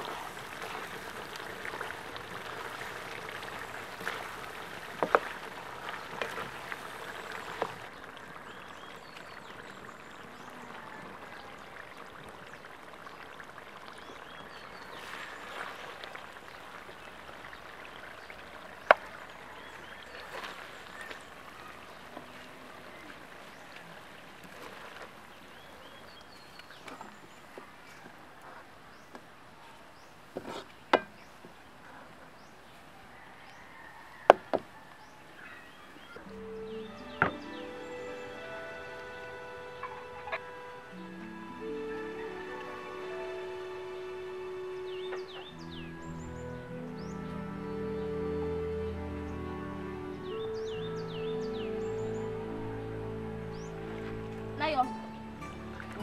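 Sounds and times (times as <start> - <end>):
sauce bubbling in a wok: 0.0 - 22.1.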